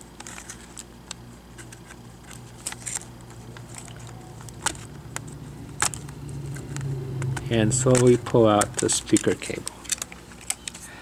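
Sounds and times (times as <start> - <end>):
steady low hum: 0.0 - 11.0
fingernails clicking on cable connector: 3.5 - 10.8.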